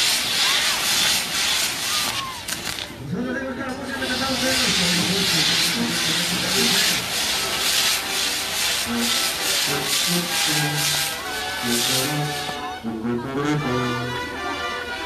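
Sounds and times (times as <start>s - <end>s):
hiss and crackle of spark fountains: 0.0s - 3.0s, 3.8s - 12.7s
low brass band notes: 8.8s - 15.0s.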